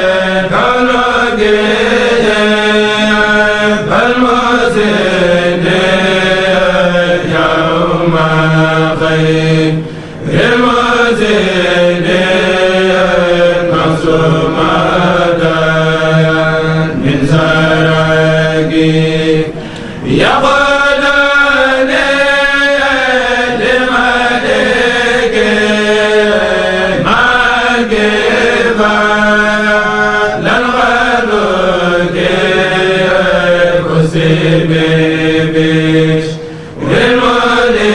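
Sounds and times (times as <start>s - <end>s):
men chanting in unison: 0.0s - 37.9s.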